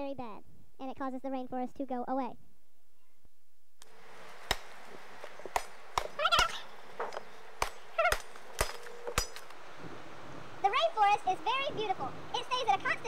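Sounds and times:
machete chopping sapling: 0:03.8 - 0:09.6.

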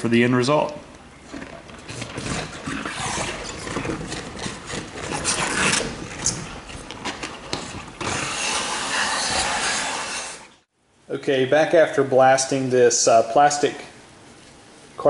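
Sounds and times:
rubber gloves rubbing and scraping: 0:01.2 - 0:10.7.

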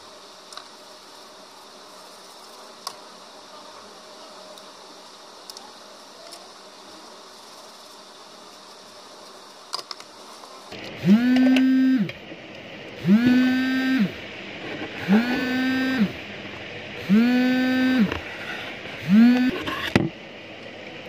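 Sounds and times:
faint steady hiss: 0:00.0 - 0:14.9
multimeter buzzer beeping: 0:11.0 - 0:12.1, 0:13.0 - 0:14.2, 0:17.0 - 0:18.1, 0:19.0 - 0:19.6.

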